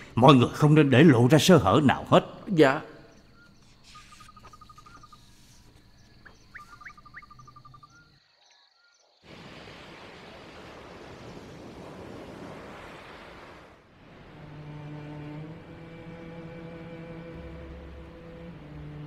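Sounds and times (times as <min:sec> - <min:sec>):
insect trilling: 0:02.3 - 0:08.8
rushing sea: 0:09.2 - 0:19.0.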